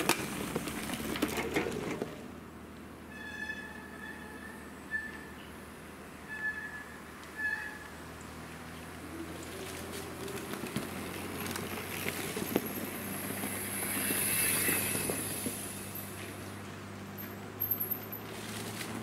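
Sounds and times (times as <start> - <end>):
bike rattles and clicks: 0.0 - 2.2, 9.4 - 19.0
bike tyres crunching on dirt: 0.0 - 2.2, 9.2 - 19.0
short high squeaks: 3.1 - 5.4, 6.2 - 8.0.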